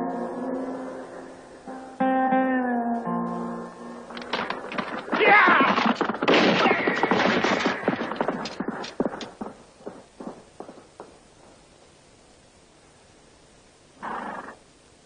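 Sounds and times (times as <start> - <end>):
horse hooves on hard dirt: 4.1 - 11.6.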